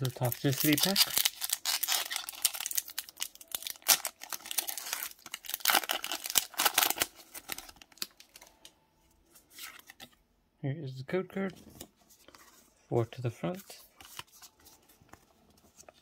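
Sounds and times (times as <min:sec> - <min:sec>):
foil wrapper tearing and crinkling: 0:00.0 - 0:08.4.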